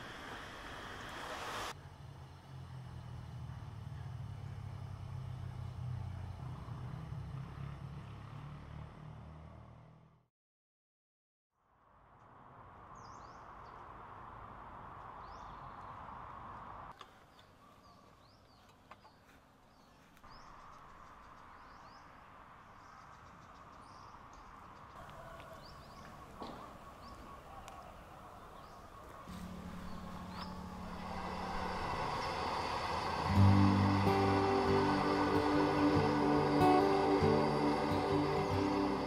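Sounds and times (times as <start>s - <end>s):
birds chirping: 17.2s - 39.0s
insect hum: 28.8s - 39.0s
steady low tone: 29.3s - 39.0s.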